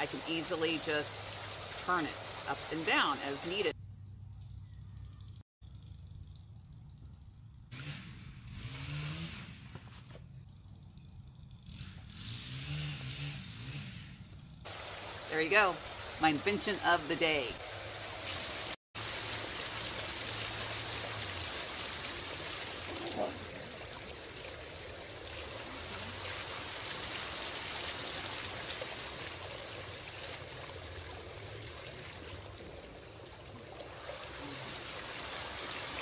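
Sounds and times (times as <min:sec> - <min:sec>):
fountain jets splashing: 0:00.0 - 0:03.7, 0:14.7 - 0:36.0.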